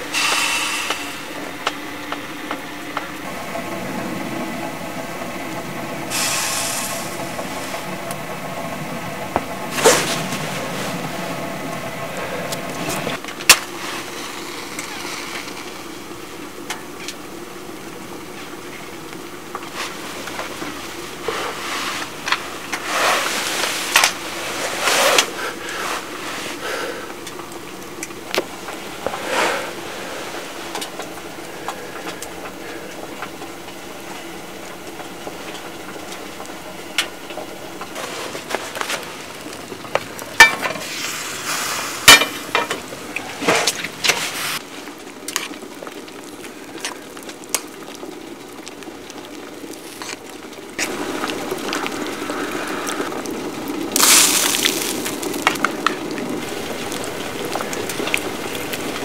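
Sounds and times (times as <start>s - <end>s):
fire hissing and crackling: 0.0s - 59.0s
soft rushing of fire: 0.0s - 59.0s
loud pops from fire: 9.3s - 11.3s, 37.0s - 59.0s.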